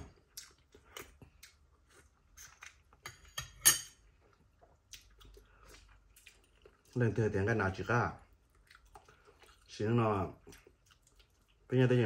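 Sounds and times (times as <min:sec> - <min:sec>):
chewing wet clicks and smacks: 0:00.2 - 0:03.0, 0:04.3 - 0:07.0, 0:08.2 - 0:11.8.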